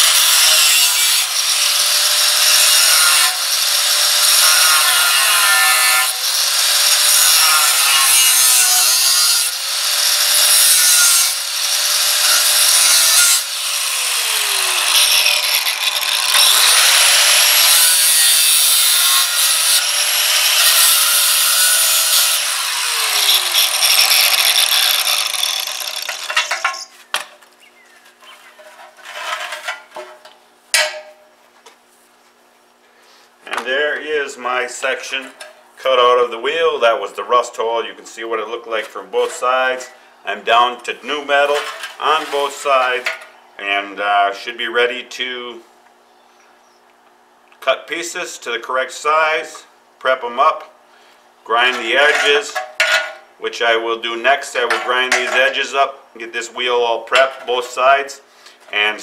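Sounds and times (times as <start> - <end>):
angle grinder cutting steel: 0.0 - 26.9.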